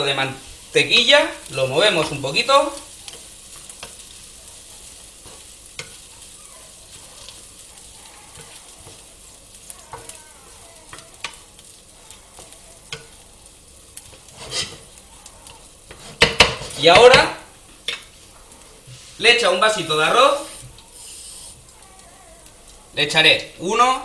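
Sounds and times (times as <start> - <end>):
rice sizzling in a pan: 0.0 - 24.0
wooden spatula scraping a pan: 2.8 - 10.2, 14.0 - 15.0, 15.8 - 17.1, 18.0 - 21.6.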